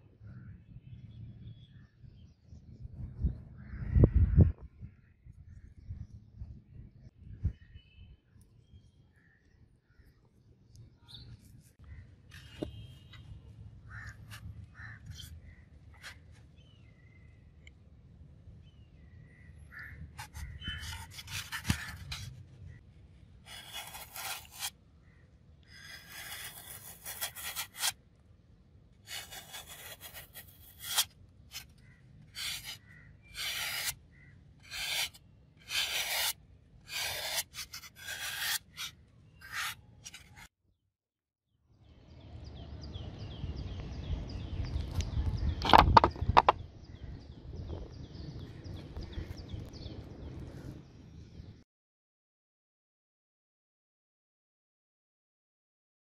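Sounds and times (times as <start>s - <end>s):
knife sawing through foam: 20.2s - 22.2s, 23.5s - 24.7s, 25.7s - 28.0s, 29.0s - 34.0s, 34.6s - 40.5s.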